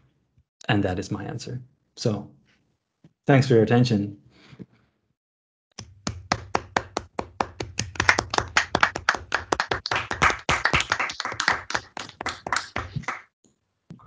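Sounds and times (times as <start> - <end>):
hands clapping: 5.8 - 13.3.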